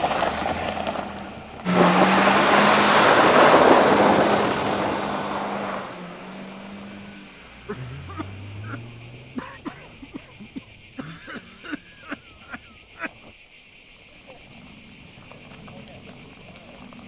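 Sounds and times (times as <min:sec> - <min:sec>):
tyres throwing gravel: 0:00.0 - 0:12.3
car engine: 0:00.0 - 0:12.7.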